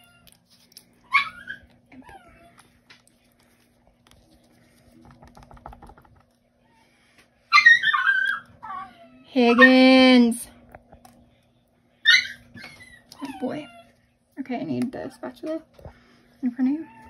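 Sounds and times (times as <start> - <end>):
dog whining: 1.0 - 2.7, 7.5 - 10.1, 12.0 - 14.0.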